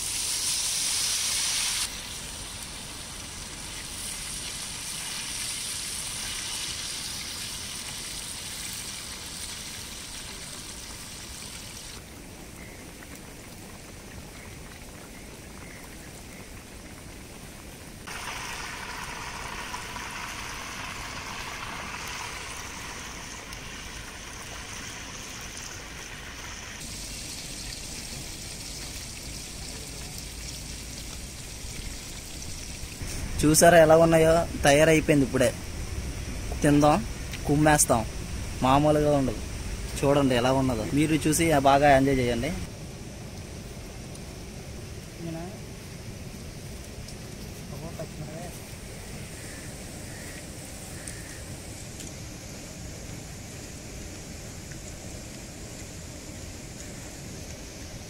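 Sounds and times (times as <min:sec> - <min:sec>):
oil sizzling and spattering: 0:00.0 - 0:12.0, 0:18.0 - 0:41.3
fish deep-frying in oil: 0:00.0 - 0:42.7, 0:43.4 - 0:58.0.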